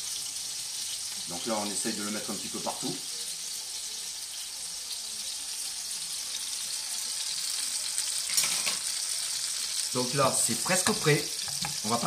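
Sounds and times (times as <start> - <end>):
tomatoes sizzling in a frying pan: 0.0 - 12.0
utensil clinking against cookware: 8.3 - 8.9.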